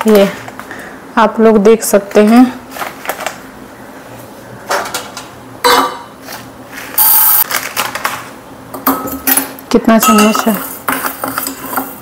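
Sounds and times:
spoon clinking steel container: 0:10.0 - 0:10.6.

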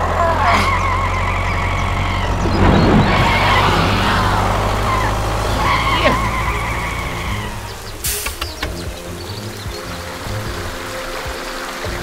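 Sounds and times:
tractor engine rumbling: 0:00.0 - 0:12.0
high wavering whine: 0:00.8 - 0:08.0.

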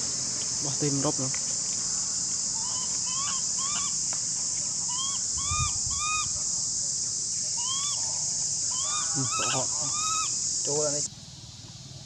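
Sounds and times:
insects droning: 0:00.0 - 0:12.0
animal calls rising and falling: 0:02.6 - 0:04.0, 0:04.9 - 0:06.4, 0:07.6 - 0:10.5.

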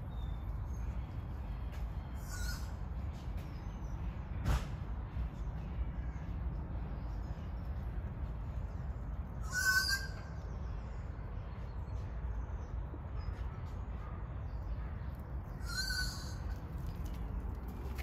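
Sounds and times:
steady low rumble: 0:00.0 - 0:09.5
parrot harsh cry: 0:09.4 - 0:10.2, 0:15.6 - 0:16.4.

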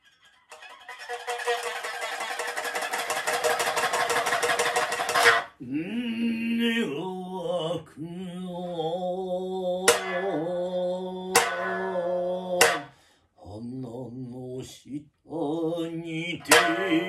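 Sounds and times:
man singing long drawn-out notes: 0:05.6 - 0:17.0
sharp plectrum strikes on lute: 0:09.9 - 0:10.5, 0:11.3 - 0:12.9, 0:16.5 - 0:17.0.

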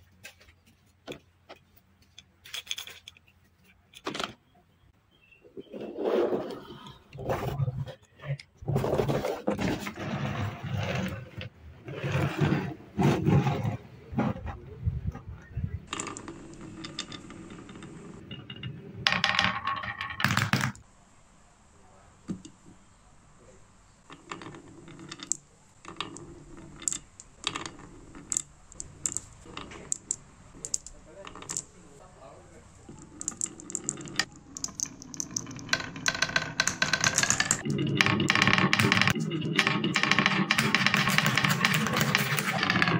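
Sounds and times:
marbles rolling on wooden track: 0:15.9 - 0:20.8, 0:24.1 - 0:31.7, 0:32.8 - 0:42.9
marbles clicking together: 0:25.1 - 0:31.7, 0:32.9 - 0:42.9
toy wheels rumbling on wood: 0:32.7 - 0:42.9.

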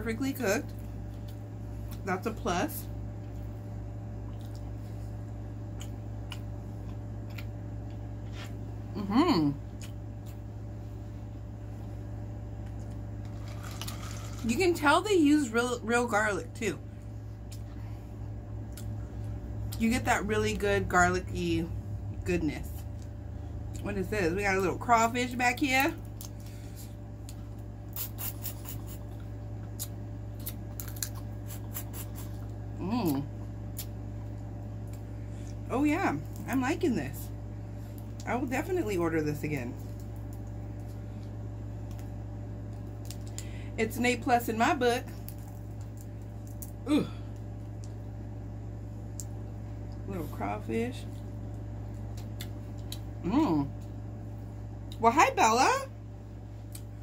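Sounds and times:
low electrical hum: 0:00.0 - 0:57.0
shell cracking and peeling: 0:30.4 - 0:31.8.

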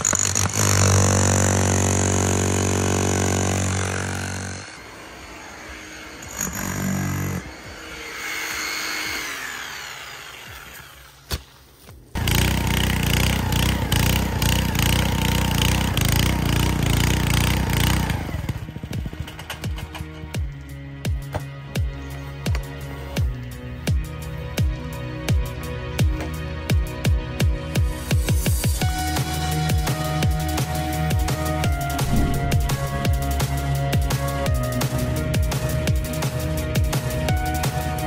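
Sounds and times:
earth auger gas engine: 0:12.2 - 0:19.3.

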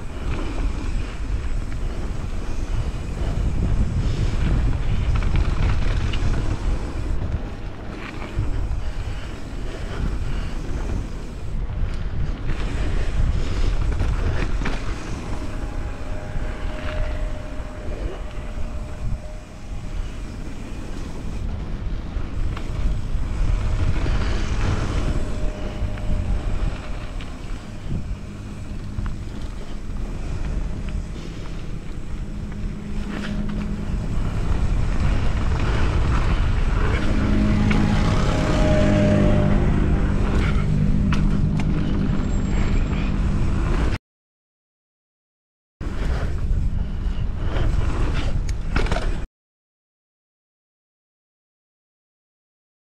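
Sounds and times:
bike tyres rolling over gravel: 0:00.0 - 0:43.9
wind buffeting microphone: 0:00.0 - 0:44.0, 0:45.8 - 0:49.3
wheel loader engine hum: 0:12.6 - 0:43.9.

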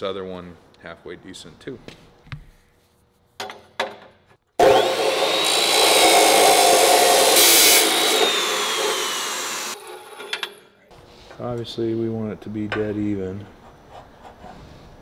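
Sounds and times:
chop saw cutting steel: 0:04.6 - 0:09.8.

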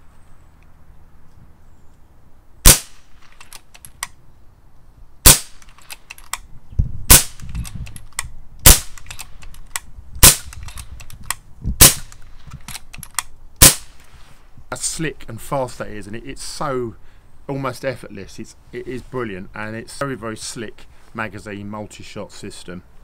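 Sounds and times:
air rifle shots: 0:02.6 - 0:03.7, 0:05.2 - 0:06.1, 0:07.1 - 0:07.9, 0:08.6 - 0:09.6, 0:10.2 - 0:11.1, 0:11.8 - 0:13.0, 0:13.6 - 0:14.2
rifle lever clicks: 0:03.2 - 0:04.2, 0:05.5 - 0:06.5, 0:07.4 - 0:13.3.

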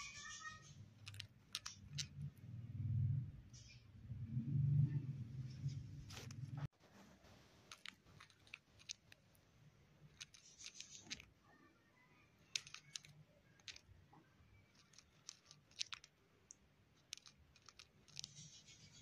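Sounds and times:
bird grinding its beak: 0:10.1 - 0:11.3, 0:14.7 - 0:16.1, 0:17.0 - 0:19.0.

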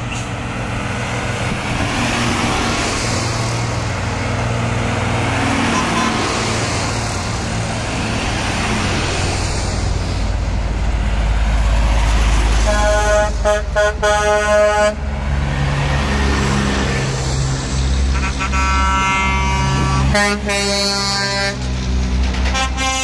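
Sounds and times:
heavy trucks driving past: 0:00.0 - 0:23.0
truck horn short blasts: 0:12.7 - 0:15.0, 0:18.2 - 0:21.6.

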